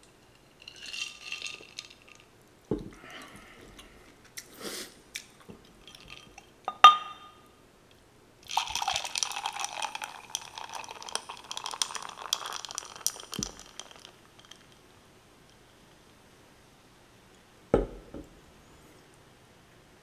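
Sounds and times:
beer pouring into a glass: 8.4 - 14.7
foam fizzing and crackling: 8.5 - 14.7
thump: 17.8 - 18.3.

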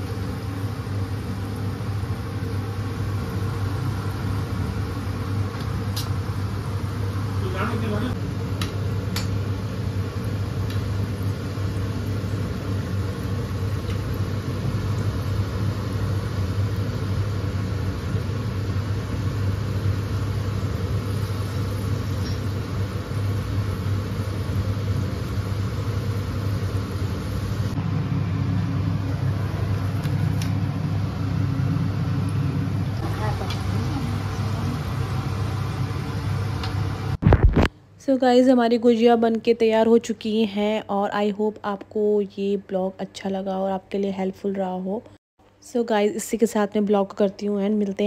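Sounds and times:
oil sizzling: 0.0 - 37.6.

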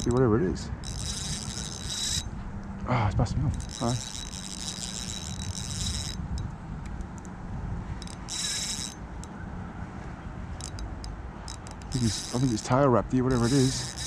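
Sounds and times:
fishing reel drag buzzing: 0.0 - 2.7, 3.5 - 7.3, 8.0 - 9.3, 10.6 - 14.0
low wind rumble: 0.0 - 14.0.

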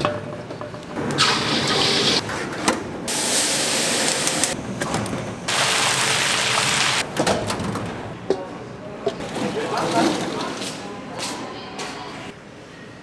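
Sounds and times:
rushing kitchen noise: 0.0 - 8.2.

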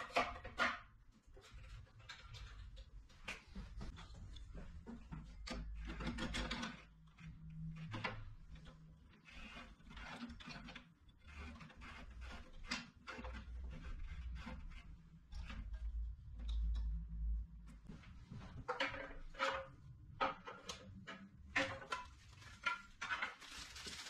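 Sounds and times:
clicks and knocks of saw parts: 4.8 - 17.4, 18.6 - 23.5.

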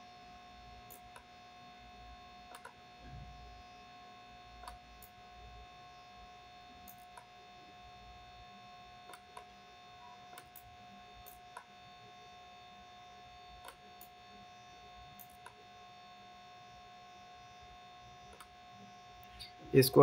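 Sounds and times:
electrical hum and whine: 0.0 - 20.0
computer mouse clicks: 0.9 - 1.3, 2.5 - 2.8, 4.6 - 5.2, 6.8 - 7.3, 9.1 - 9.5, 10.3 - 11.7, 13.6 - 14.1, 15.2 - 15.6, 18.3 - 18.5.

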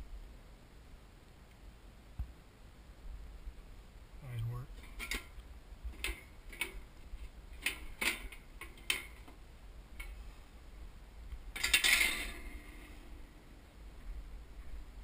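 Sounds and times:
metal grate rattling and scraping: 4.8 - 9.4, 11.5 - 13.3.

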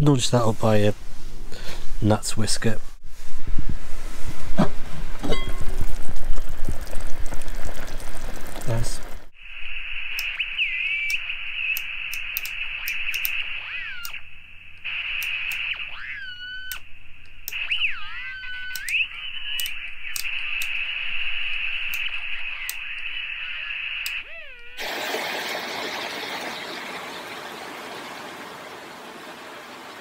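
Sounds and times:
radio band hiss: 8.6 - 16.1, 17.5 - 29.0
sliding whistling tones: 9.6 - 14.2, 14.9 - 16.8, 17.5 - 27.5
faint clicks: 11.0 - 13.4, 14.0 - 14.2, 18.7 - 19.0, 19.6 - 20.8, 24.0 - 24.8.

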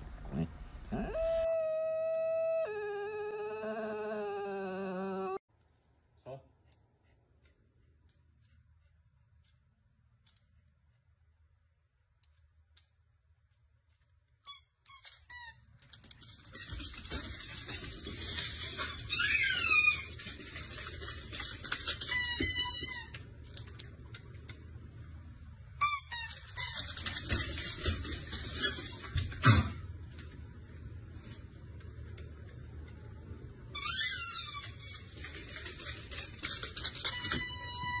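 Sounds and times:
puppy whining: 0.2 - 5.5
dog yipping: 0.9 - 5.4.

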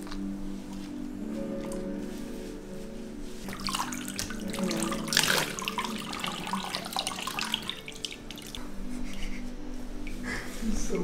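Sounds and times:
water poured splashing: 3.4 - 8.6.

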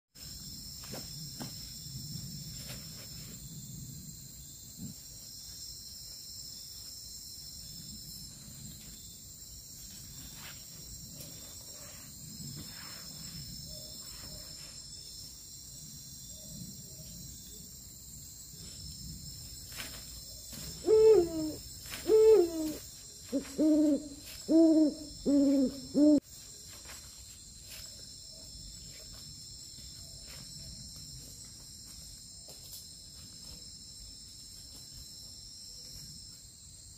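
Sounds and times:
insects trilling: 0.2 - 36.9
owl hoots: 20.8 - 26.2.

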